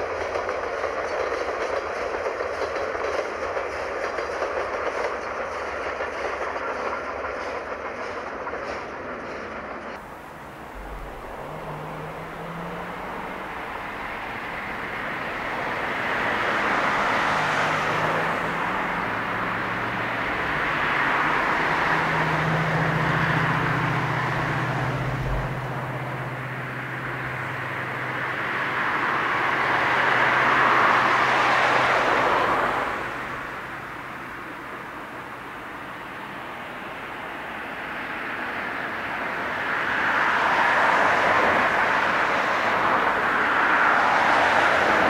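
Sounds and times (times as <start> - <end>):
distant road traffic: 0.0 - 45.0
distant train: 0.0 - 45.0.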